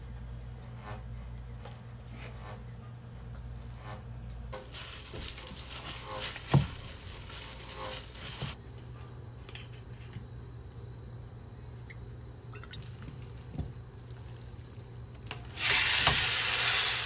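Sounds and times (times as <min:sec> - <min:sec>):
low steady hum: 0:00.0 - 0:15.8
plastic crinkling: 0:04.6 - 0:08.6.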